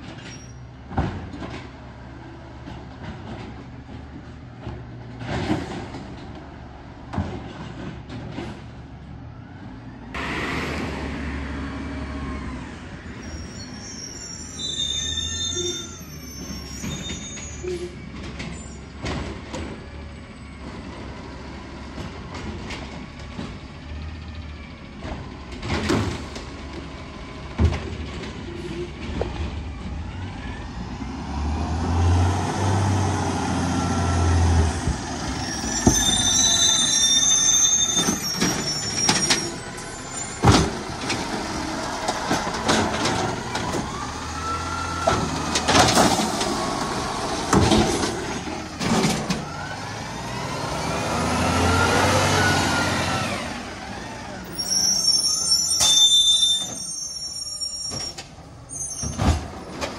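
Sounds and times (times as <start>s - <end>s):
high brake squeal: 0.2s - 0.7s, 13.1s - 19.0s, 35.2s - 40.5s, 54.2s - 59.8s
diesel truck engine revving: 9.6s - 13.4s, 28.9s - 55.1s.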